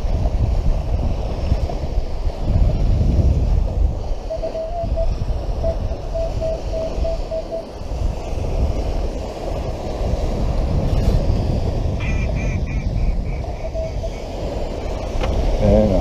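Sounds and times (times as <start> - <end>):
wind buffeting microphone: 0.0 - 16.0
short beeps: 4.3 - 7.6.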